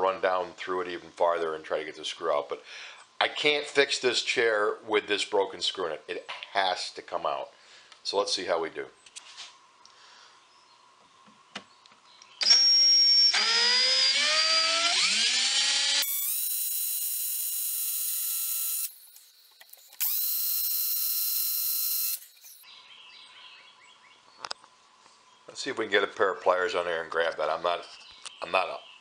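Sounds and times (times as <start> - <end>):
cordless drill whine: 12.4 - 22.6.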